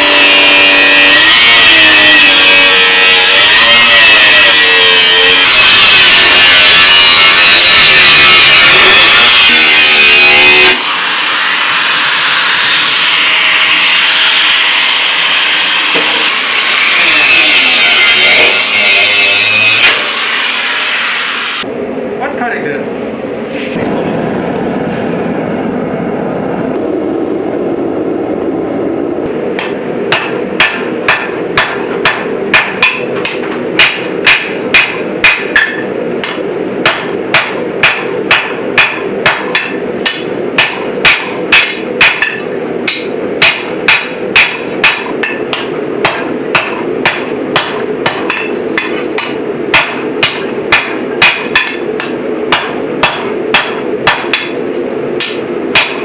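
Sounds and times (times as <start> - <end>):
steady low rumble: 21.6 - 32.6
hammer striking steel on anvil: 29.5 - 54.6, 55.2 - 56.0.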